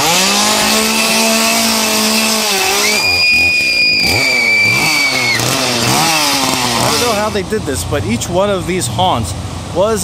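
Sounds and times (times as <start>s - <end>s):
chainsaw revving: 0.0s - 8.2s
high-pitched squeal: 0.5s - 7.4s.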